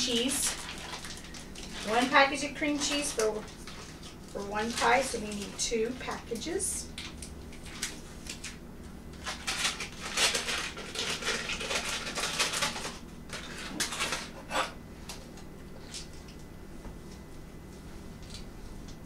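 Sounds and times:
packaging rustling: 0.0 - 6.4, 7.0 - 14.4.

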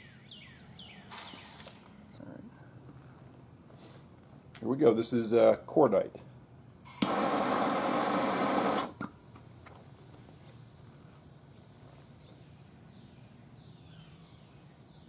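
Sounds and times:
burning powder hissing: 6.9 - 9.0.

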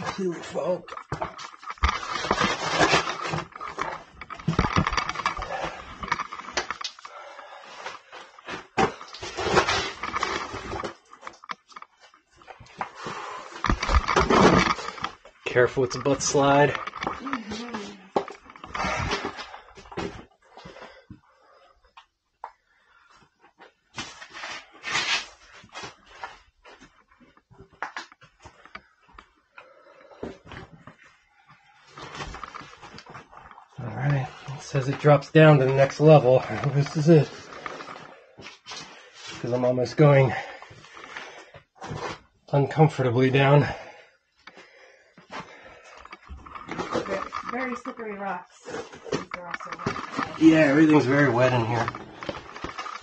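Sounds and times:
scraping and rustling against rock: 0.1 - 7.2, 7.8 - 20.2, 30.2 - 42.3, 45.3 - 53.0
person breathing hard: 7.0 - 8.5
heavy breathing: 7.0 - 9.2, 40.3 - 41.8, 43.6 - 46.9.

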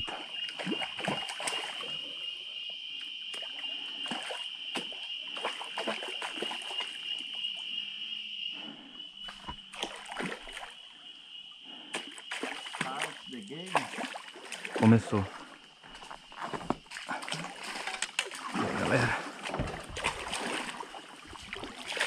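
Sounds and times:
water splashing beside a kayak: 9.2 - 10.8, 11.6 - 22.0.

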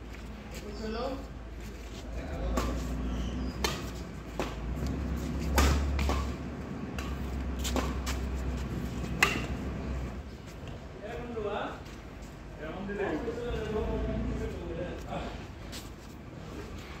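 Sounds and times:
low steady rumble: 1.4 - 10.5
rackets hitting shuttlecock: 2.5 - 9.9.

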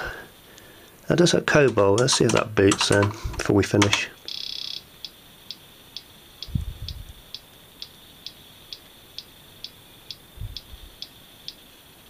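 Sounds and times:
floppy emulator clicking: 1.6 - 4.5.

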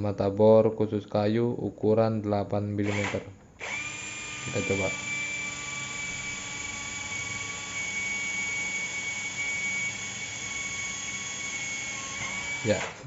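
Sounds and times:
cordless drill whining: 2.8 - 13.0.

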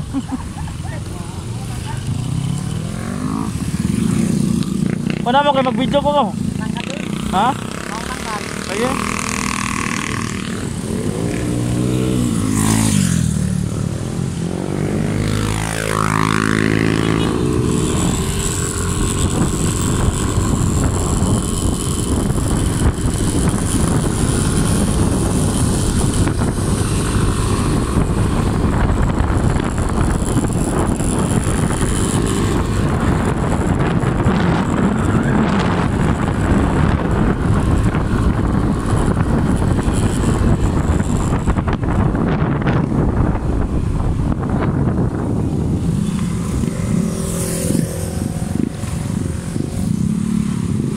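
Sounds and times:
small motorcycle engine: 0.2 - 50.9
wind on microphone: 1.4 - 50.9.

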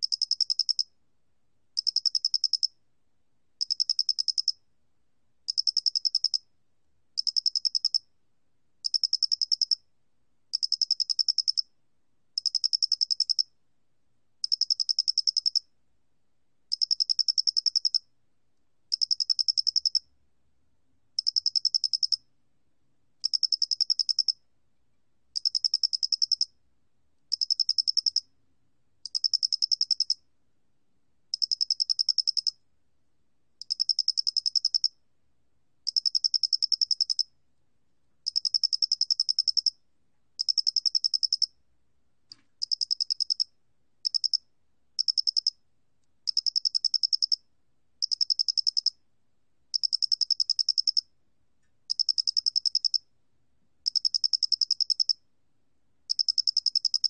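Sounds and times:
cricket chirping: 0.0 - 0.9, 1.8 - 2.8, 3.6 - 4.6, 5.5 - 6.5, 7.2 - 8.1, 8.8 - 9.8, 10.5 - 11.7, 12.4 - 13.5, 14.4 - 15.7, 16.7 - 18.1, 18.9 - 20.1, 21.2 - 22.3, 23.2 - 24.4, 25.4 - 26.6, 27.3 - 28.3, 29.1 - 30.3, 31.3 - 32.6, 33.6 - 35.0, 35.8 - 37.3, 38.2 - 39.8, 40.4 - 41.6, 42.6 - 45.6, 46.3 - 49.0, 49.7 - 51.1, 51.9 - 53.1, 53.8 - 55.2, 56.1 - 57.0.

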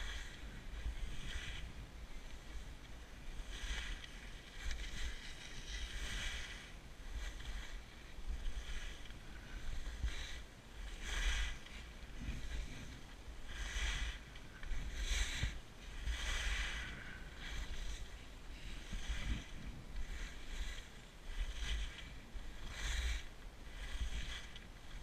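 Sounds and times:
skis carving across snow: 0.0 - 25.0
wind buffeting microphone: 0.0 - 25.0.

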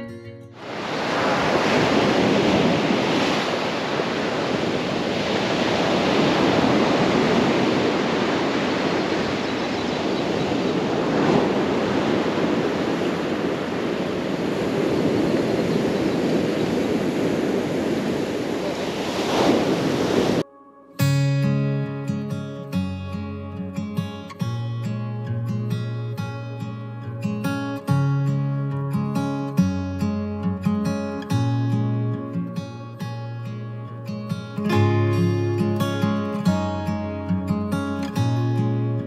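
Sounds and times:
waves breaking on beach: 0.5 - 20.5.

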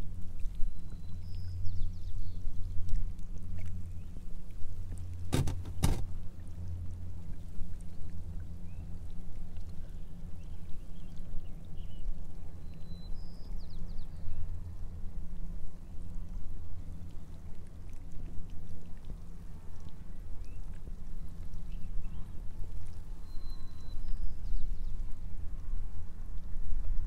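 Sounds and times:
water lapping against kayak hull: 0.0 - 10.4
sharp knocks on hull: 5.3 - 6.2.

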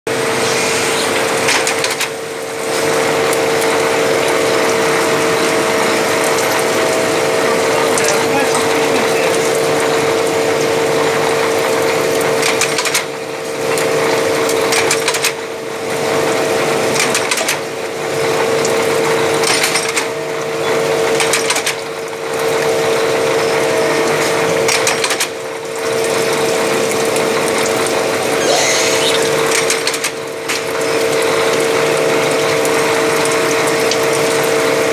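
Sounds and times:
constant machine whine: 0.1 - 34.9
lathe mechanical clatter: 1.0 - 15.4, 16.1 - 20.2, 20.8 - 22.6, 24.1 - 27.0, 29.3 - 31.4.

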